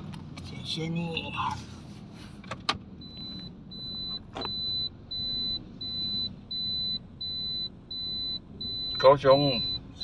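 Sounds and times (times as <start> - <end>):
low rumble of car: 0.0 - 10.0
car warning beeps: 3.0 - 10.0.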